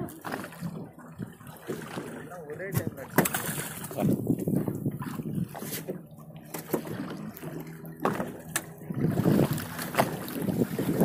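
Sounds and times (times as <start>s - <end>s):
water splashing against boat hull: 0.0s - 11.0s
fish thrashing at surface: 3.1s - 3.9s.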